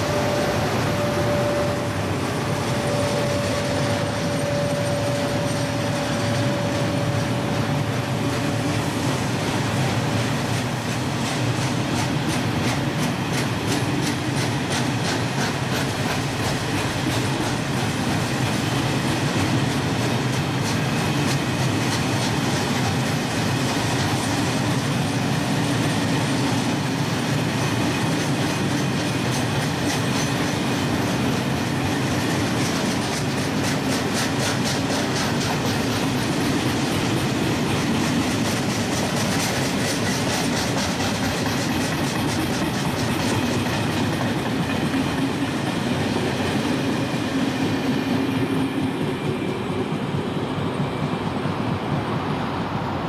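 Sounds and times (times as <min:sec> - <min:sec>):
faint high squeal: 0:00.0 - 0:08.6
wheels clacking over rails: 0:00.0 - 0:49.4.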